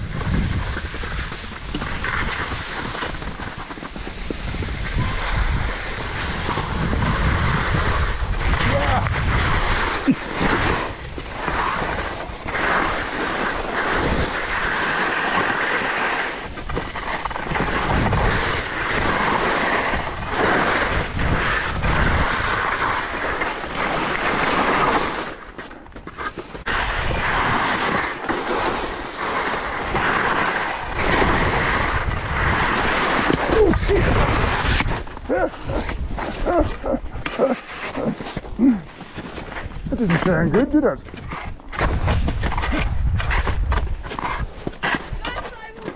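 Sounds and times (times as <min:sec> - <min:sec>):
wind buffeting microphone: 0:00.0 - 0:14.7, 0:16.3 - 0:23.0, 0:29.6 - 0:37.3, 0:38.5 - 0:45.5
skis scraping over snow: 0:00.0 - 0:45.9.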